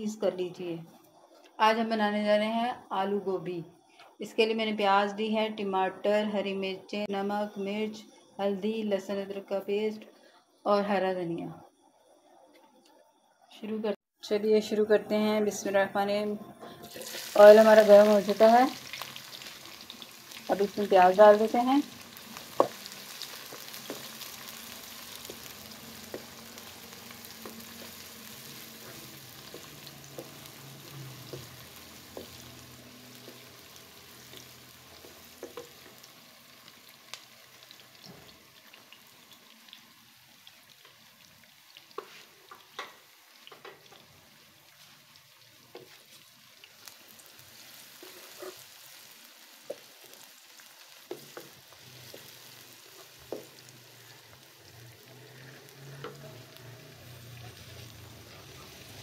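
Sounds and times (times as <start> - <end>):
onions sizzling in hot oil: 16.8 - 59.0
spatula ticks and taps: 35.0 - 35.8.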